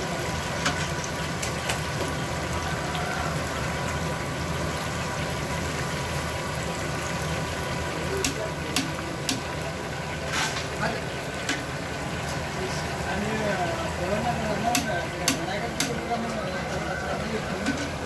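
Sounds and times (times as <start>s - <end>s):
oil sizzling and bubbling: 0.0s - 18.0s
metal skimmer clicking on pan: 8.2s - 9.5s, 14.7s - 16.4s.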